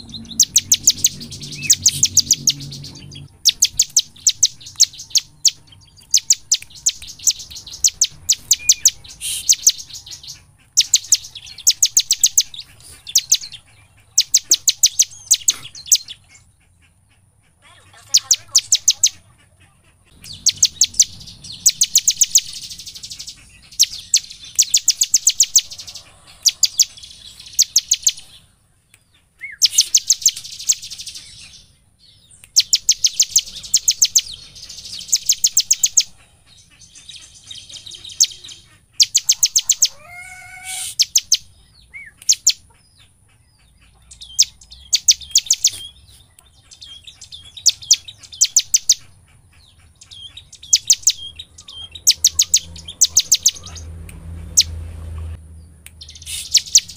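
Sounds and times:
lower wavering bird call: 0.0 - 13.6, 20.1 - 28.4, 37.6 - 42.6
bird fast high chipping song: 0.0 - 56.9.

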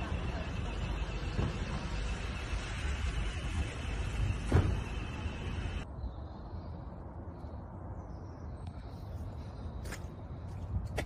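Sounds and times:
thump: 4.5 - 4.9
wind buffeting microphone: 10.4 - 11.0.

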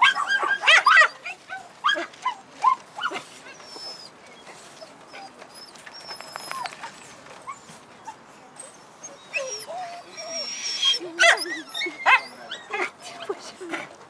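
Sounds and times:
dogs whining and yipping: 3.0 - 12.8.

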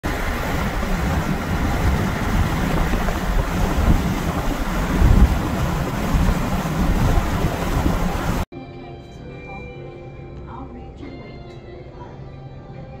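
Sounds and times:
wind and road noise: 0.0 - 8.5
wind buffeting microphone: 0.0 - 8.5.

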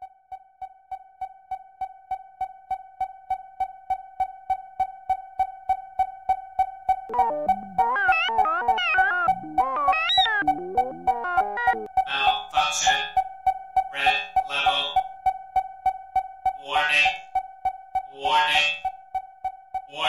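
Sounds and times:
pulsing synthesizer note: 7.1 - 12.0
keyboard melody: 7.1 - 13.3.

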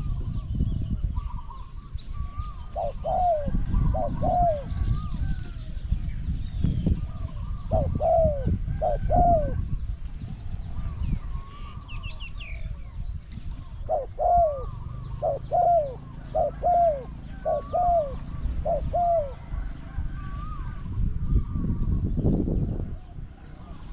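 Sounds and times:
small birds chirping: 0.0 - 23.9
dove cooing: 1.1 - 5.6, 7.0 - 9.8, 13.5 - 21.8.

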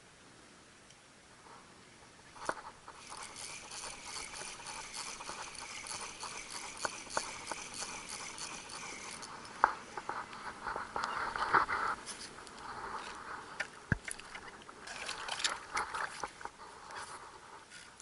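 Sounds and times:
sharp reel click: 2.4 - 9.6
fishing reel gears rattling: 2.4 - 10.0.

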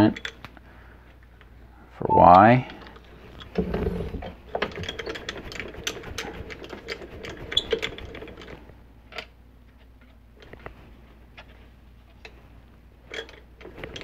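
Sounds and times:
handwheel clicking clatter: 4.5 - 8.6.

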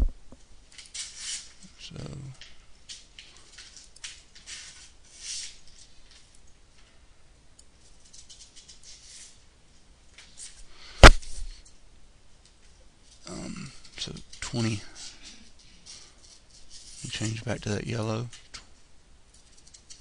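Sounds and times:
sharp loud click: 11.0 - 11.4.

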